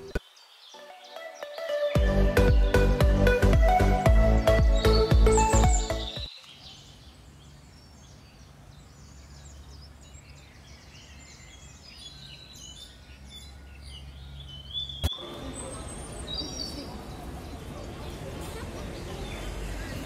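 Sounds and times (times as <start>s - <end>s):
birds chirping: 0.0s - 20.0s
intro music: 0.8s - 6.3s.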